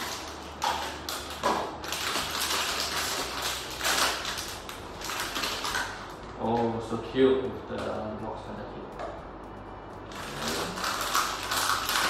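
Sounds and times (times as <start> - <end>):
plastic packaging rustling: 0.0 - 6.7, 10.1 - 12.0.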